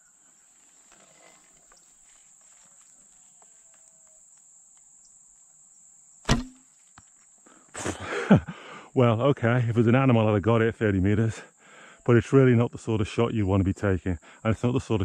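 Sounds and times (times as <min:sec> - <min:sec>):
high insect chirr: 0:00.0 - 0:15.0
bowstring snap and thrum: 0:06.2 - 0:06.7.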